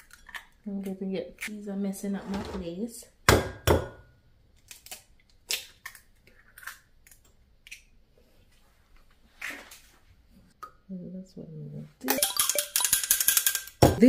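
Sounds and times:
eggshell cracking: 0:04.6 - 0:08.0
glass ringing: 0:12.1 - 0:13.3.

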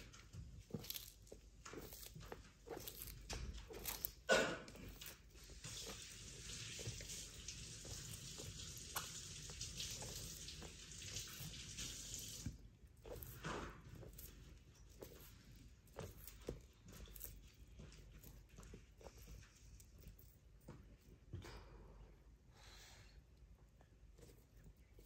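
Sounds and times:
tap water running: 0:04.0 - 0:14.3.

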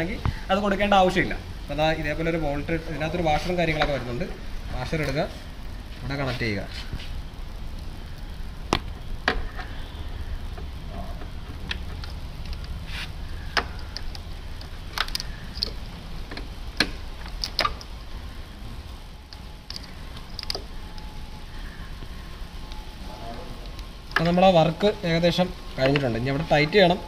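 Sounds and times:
steady low hum: 0:00.0 - 0:27.0
small metal clicks and taps: 0:13.5 - 0:17.9, 0:19.3 - 0:20.7.

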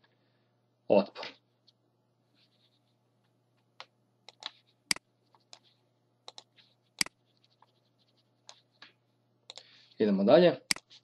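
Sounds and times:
mouse and keyboard clicks: 0:03.8 - 0:07.7, 0:10.7 - 0:11.0.

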